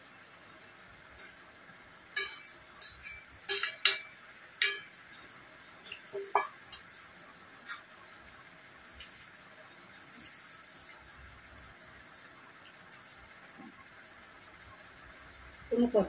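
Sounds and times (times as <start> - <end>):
metal spoon clinking against a pan: 2.1 - 5.2.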